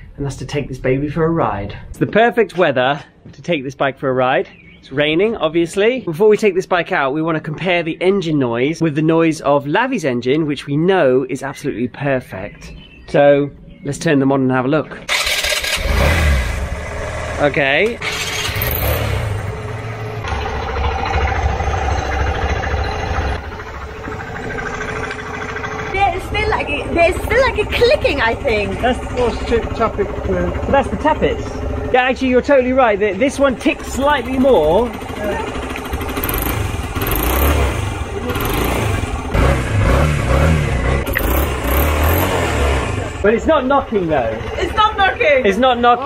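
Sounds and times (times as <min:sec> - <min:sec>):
motorcycle engines idling: 0:15.0 - 0:46.0
light engine clicking: 0:33.6 - 0:37.6, 0:41.1 - 0:42.3
tappet ticking: 0:41.0 - 0:42.4.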